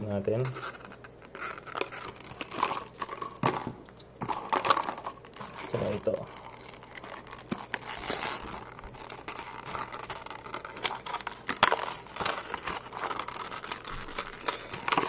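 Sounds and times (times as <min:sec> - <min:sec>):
plastic packaging crinkling: 0:00.4 - 0:15.0.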